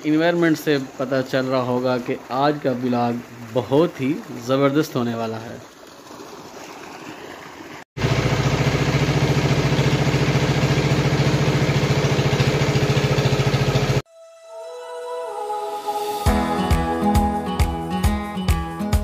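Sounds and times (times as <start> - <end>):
small engine running steadily: 8.0 - 14.0.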